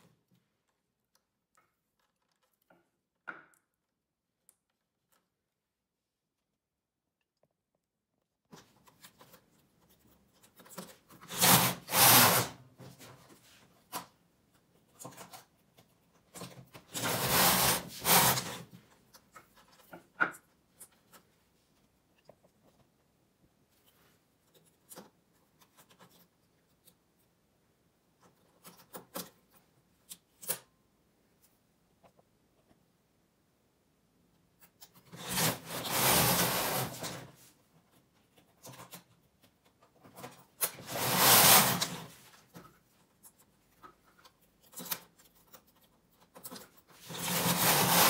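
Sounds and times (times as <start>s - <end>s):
rasping rubbing sound: 11.3s - 12.6s, 16.9s - 18.7s, 35.1s - 37.2s, 40.8s - 42.3s, 47.0s - 48.0s.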